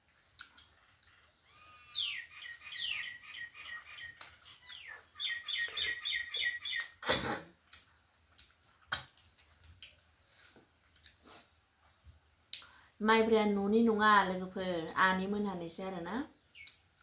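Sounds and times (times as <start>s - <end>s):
bird singing: 1.1s - 7.0s.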